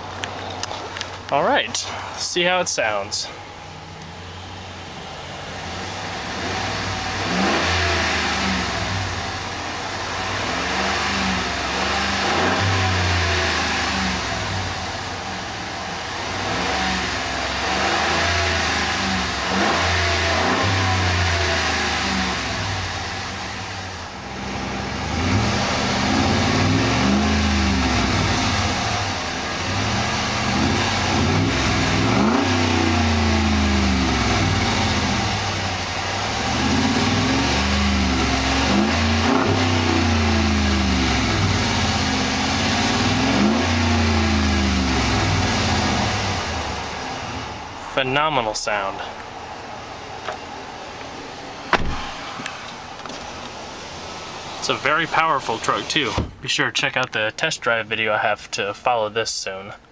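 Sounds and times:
engine revving: 2.8 - 49.0.

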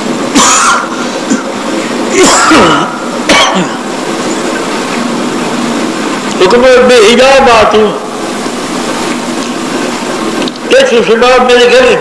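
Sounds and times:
background hiss: 0.0 - 12.0
person coughing: 0.4 - 1.5, 2.1 - 3.9.

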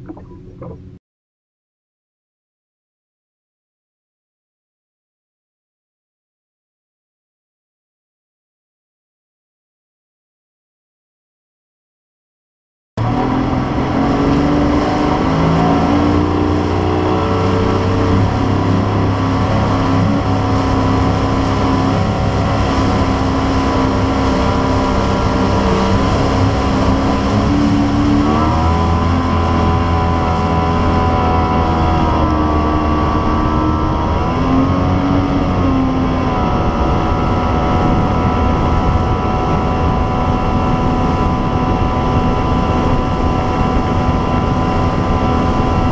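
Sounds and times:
outboard motor running: 0.0 - 1.0, 13.0 - 45.9.

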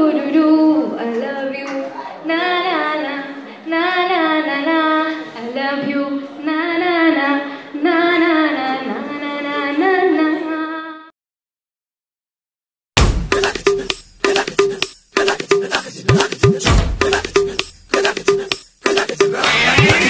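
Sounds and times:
women singing unaccompanied: 0.0 - 11.1.

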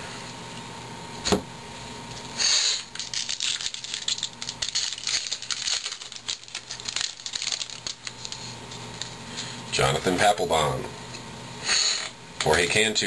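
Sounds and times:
wrapper tearing and crinkling: 2.8 - 9.2.

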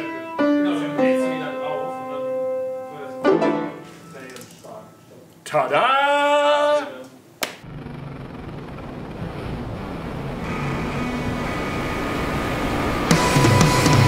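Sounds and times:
rushing rumbling noise: 7.6 - 14.0
heavy rock music: 12.6 - 14.0.

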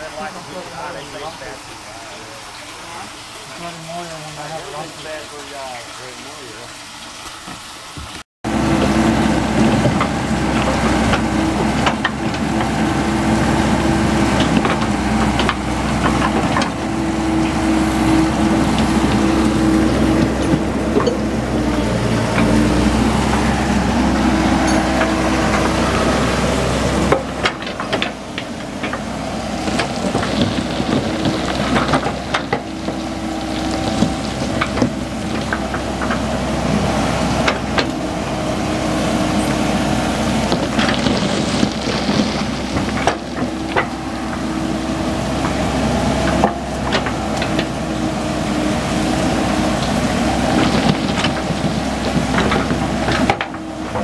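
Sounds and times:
excavator diesel engine running: 8.4 - 54.0
rock and dirt rattling: 8.8 - 38.2, 39.3 - 54.0.

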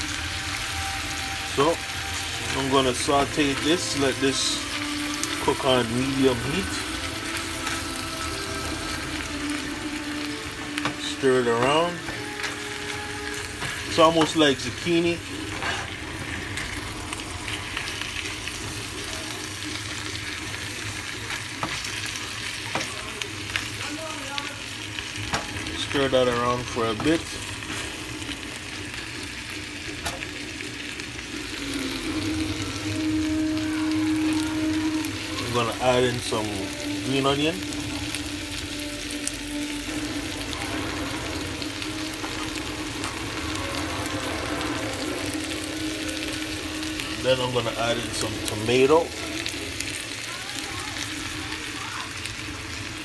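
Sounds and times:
food sizzling in a frying pan: 0.0 - 53.0
spatula stirring in a pan: 15.5 - 16.7.

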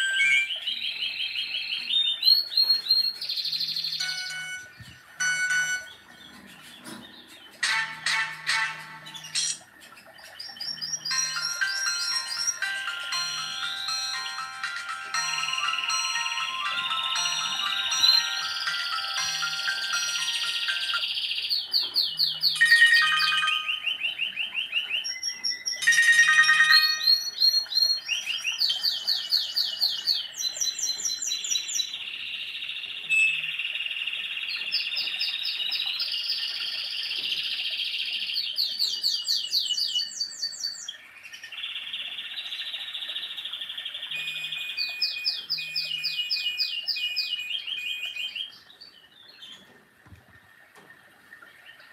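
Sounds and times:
held electronic tones: 0.0 - 0.5, 4.0 - 6.0
phone ringtone beeps: 0.0 - 0.5, 4.0 - 6.0, 11.1 - 21.0, 22.6 - 24.0, 25.8 - 27.4, 44.1 - 46.3.

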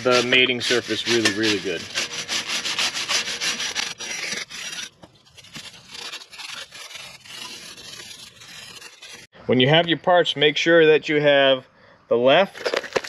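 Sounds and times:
rubbing wipe on hub: 0.0 - 9.3
wire brush scrubbing metal: 0.0 - 9.3.

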